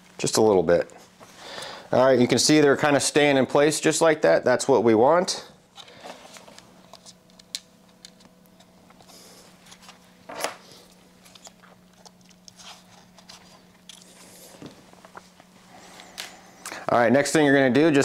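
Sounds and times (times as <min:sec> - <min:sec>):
faint steady hum: 0:00.0 - 0:18.0
hands handling small parts: 0:11.2 - 0:15.2.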